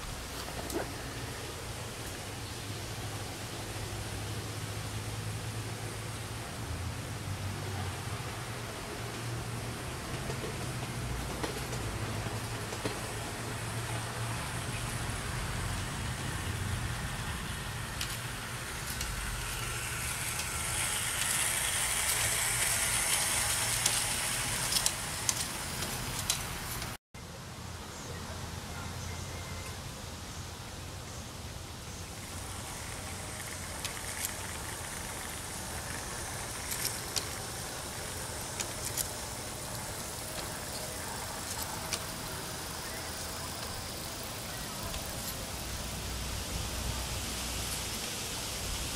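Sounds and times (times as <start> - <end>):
wheels clicking over rail joints: 0.0 - 2.4, 7.5 - 27.0, 32.1 - 48.9
model train running on track: 0.0 - 27.0, 32.1 - 48.9.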